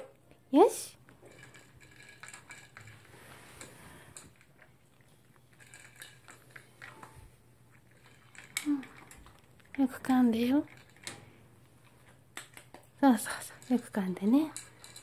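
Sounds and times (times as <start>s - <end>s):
dog crunching kibble: 1.0s - 15.0s
pellets clicking against bowl: 12.0s - 15.0s.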